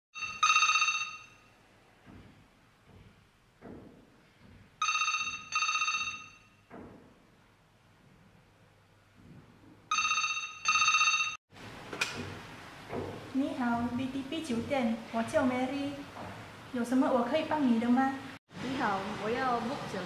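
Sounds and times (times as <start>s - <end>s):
desk telephone ringing: 0.2s - 1.6s, 4.8s - 6.7s, 9.9s - 11.4s.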